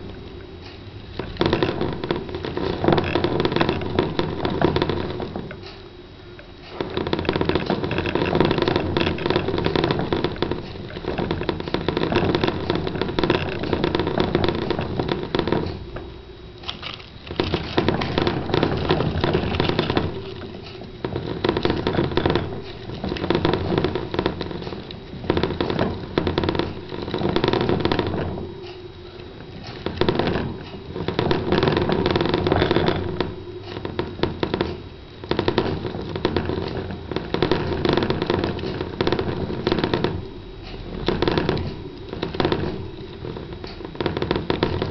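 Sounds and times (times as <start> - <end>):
plastic exercise wheel rattling: 6.8 - 15.8, 16.6 - 27.4.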